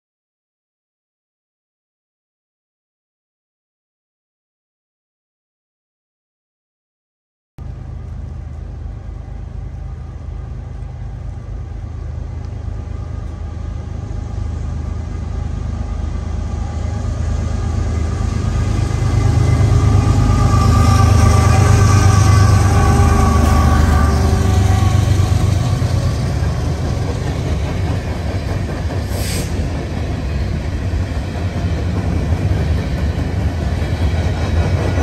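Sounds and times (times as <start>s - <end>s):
diesel locomotive engine rumble: 7.6s - 35.0s
train wheels hissing on rails: 22.7s - 35.0s.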